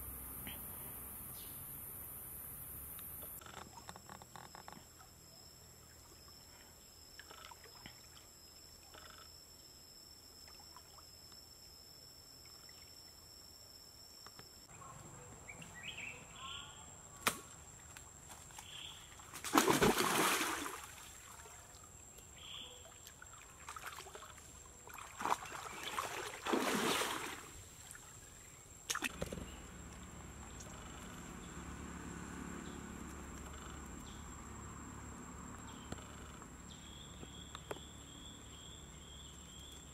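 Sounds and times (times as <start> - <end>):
high-pitched insect whine: 0.0 - 5.5
slingshot snap: 17.2 - 17.6
splashing through water: 18.5 - 21.8, 22.9 - 28.0.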